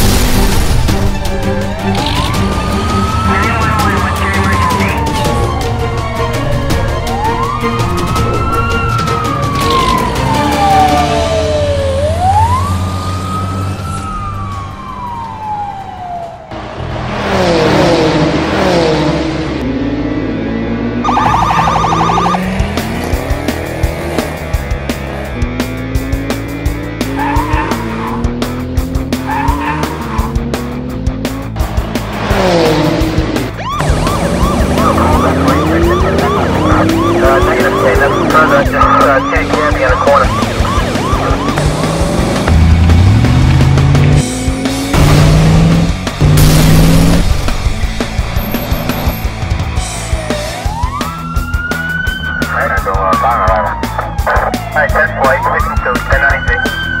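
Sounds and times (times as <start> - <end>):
car engine revving: 0.0 - 14.6, 16.5 - 57.0
siren wail: 0.9 - 16.6, 19.6 - 22.6, 27.1 - 28.3, 29.2 - 30.4, 33.4 - 42.6, 49.0 - 57.0.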